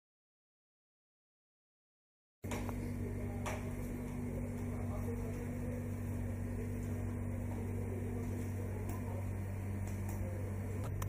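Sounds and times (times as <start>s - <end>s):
low mechanical hum: 2.4s - 11.0s
faint voices murmuring: 2.5s - 11.0s.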